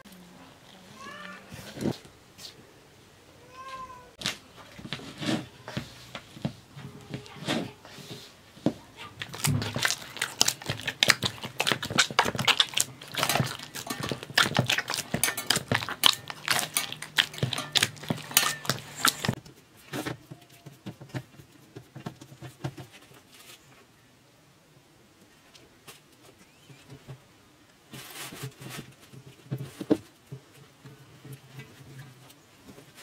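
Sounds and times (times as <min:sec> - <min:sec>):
dough kneaded in metal bowl: 0:04.2 - 0:20.3.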